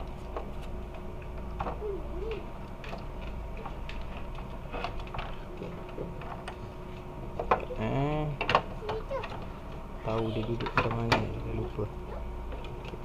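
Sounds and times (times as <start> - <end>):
plastic parts clicking and knocking: 8.4 - 9.5, 10.1 - 11.4.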